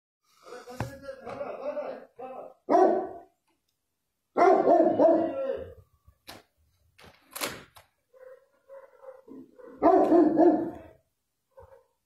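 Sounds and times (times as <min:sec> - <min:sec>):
dog barking loudly: 0:02.7 - 0:03.3, 0:04.4 - 0:05.6, 0:08.1 - 0:10.9, 0:11.5 - 0:12.0.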